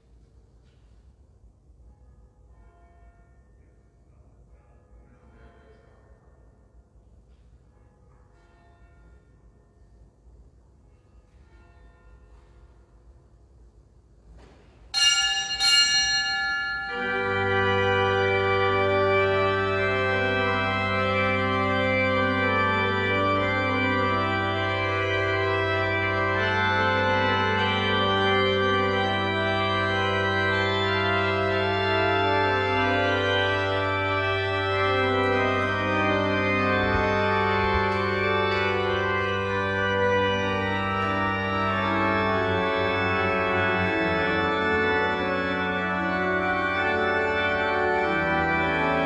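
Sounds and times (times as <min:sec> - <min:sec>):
church organ chords: 0:14.4 - 0:49.0
small bell ringing: 0:15.0 - 0:17.3.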